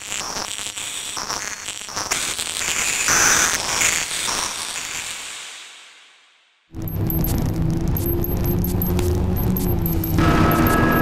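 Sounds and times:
crackling static noise music: 0.0 - 11.0
high whistling tones: 8.0 - 11.0.

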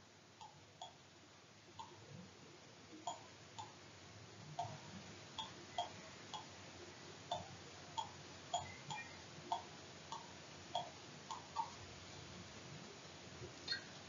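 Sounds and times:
computer mouse clicking: 7.3 - 11.8.

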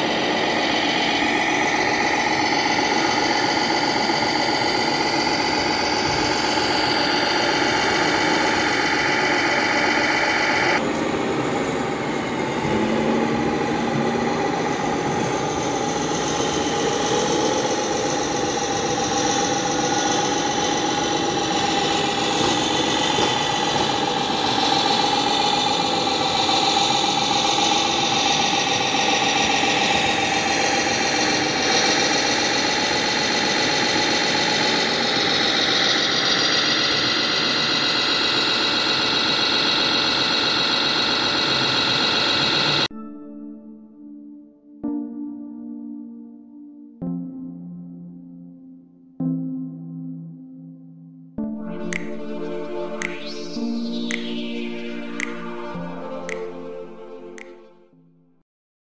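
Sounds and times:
dense background din: 0.0 - 37.1
model truck engines running: 0.0 - 42.9.

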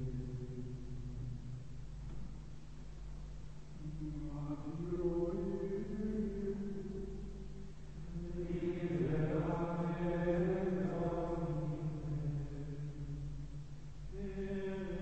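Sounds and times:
men singing plainchant in unison: 8.1 - 12.6.

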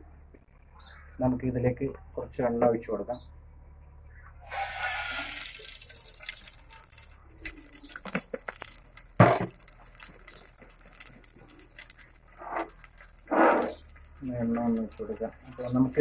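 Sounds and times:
oil pouring into a hot pot: 4.5 - 16.0.

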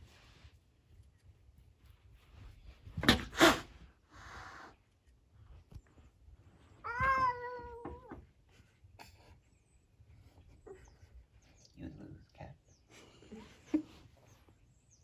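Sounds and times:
cat meowing: 6.8 - 8.2.

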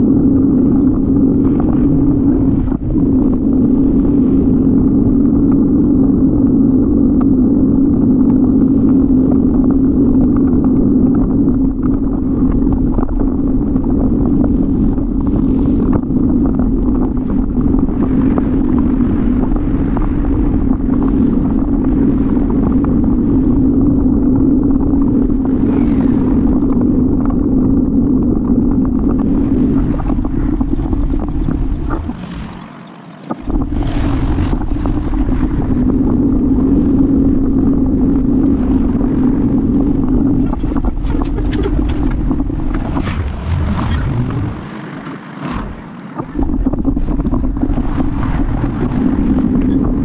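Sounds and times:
wind and road noise: 0.0 - 50.0.

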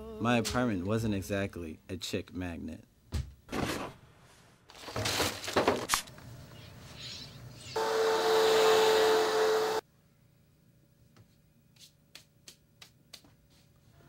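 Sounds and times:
rustling clothes and newspapers: 3.7 - 6.4
vacuum cleaner running on carpet: 7.8 - 9.8.

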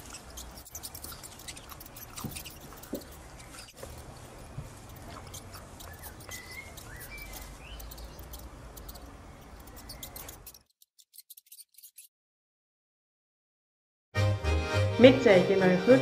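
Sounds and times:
straw rustling and clicking: 0.0 - 12.1.

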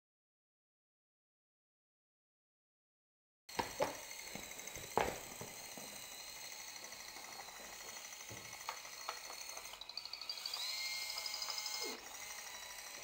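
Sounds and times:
robot motors whining: 3.5 - 13.0.

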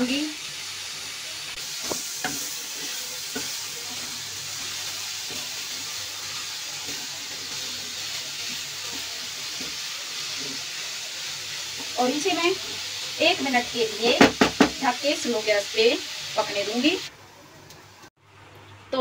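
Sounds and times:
food sizzling in hot fat: 0.0 - 18.1
spatula knocking on pan: 14.2 - 14.8.

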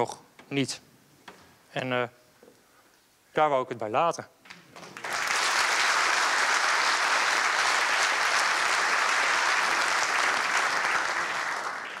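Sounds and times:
audience applauding: 4.8 - 12.0.

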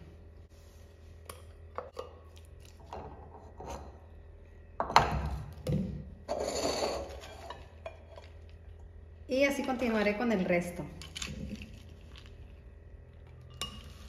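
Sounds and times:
wooden spoon scraping glass jar: 6.3 - 8.3.

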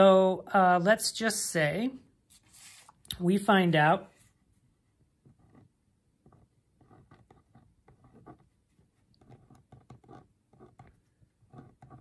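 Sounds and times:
pen scratching on paper: 4.2 - 12.0.

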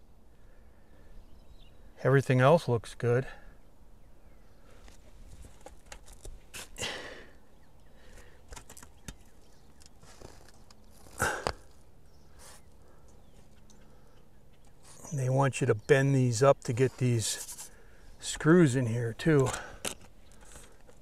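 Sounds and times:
taps and scrapes on shingles: 8.1 - 11.8, 17.2 - 17.8.

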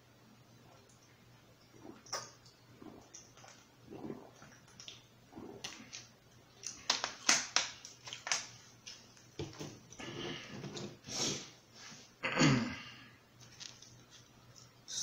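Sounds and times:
person gulping water: 0.6 - 7.2
plastic bottle crackling: 5.6 - 9.8.

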